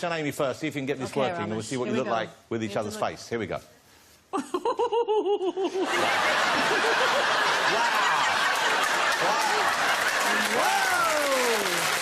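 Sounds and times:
person laughing: 0:04.4 - 0:06.0
studio audience laughter: 0:04.6 - 0:10.7
audience applause: 0:05.9 - 0:12.0.

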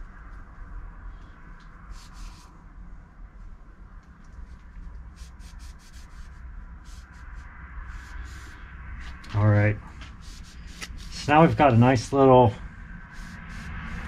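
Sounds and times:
steady low hum: 0:00.0 - 0:14.0
cloth rubbing on knife blade: 0:01.9 - 0:02.5, 0:04.4 - 0:09.2, 0:10.0 - 0:11.8, 0:13.0 - 0:14.0.

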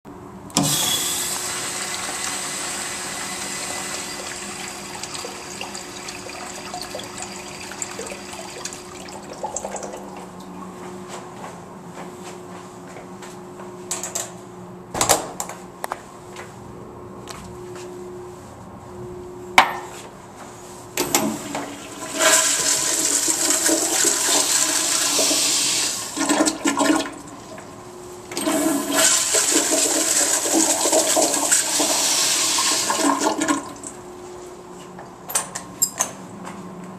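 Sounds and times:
urinal flushing: 0:00.6 - 0:10.6, 0:21.0 - 0:34.1.

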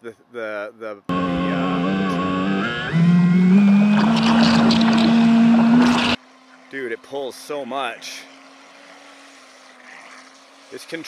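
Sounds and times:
electric motor whining: 0:01.1 - 0:06.2.

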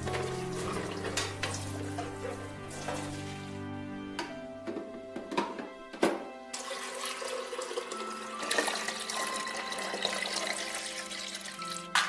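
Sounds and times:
water running and splashing: 0:00.0 - 0:03.6, 0:06.6 - 0:12.0.

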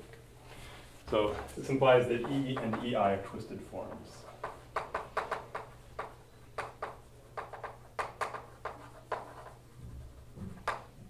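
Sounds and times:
chalk tapping and scratching: 0:03.8 - 0:11.0.

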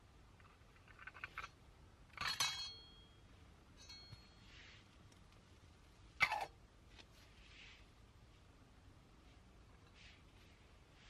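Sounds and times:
metal spoon clinking on pot: 0:02.2 - 0:03.1.

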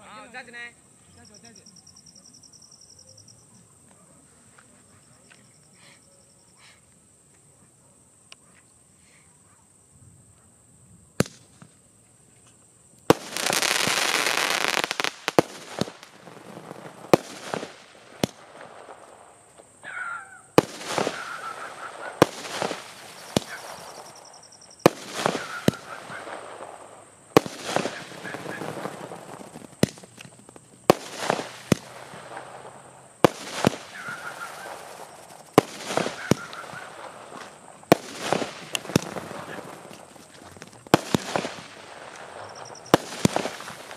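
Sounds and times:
crackling firework burst: 0:11.1 - 0:11.8, 0:13.0 - 0:43.9
firework shells cracking: 0:11.2 - 0:11.8, 0:13.0 - 0:19.8, 0:20.4 - 0:43.9.

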